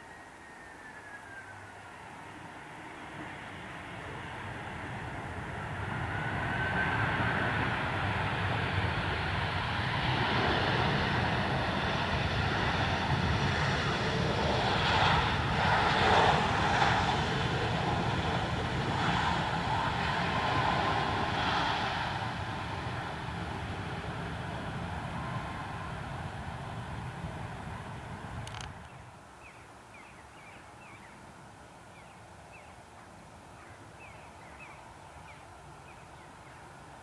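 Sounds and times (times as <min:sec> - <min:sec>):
jet engine roar: 0:02.5 - 0:28.8.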